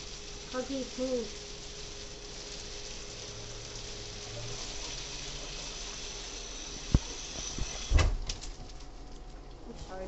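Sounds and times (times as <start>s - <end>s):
bathtub tap running: 3.2s - 8.6s.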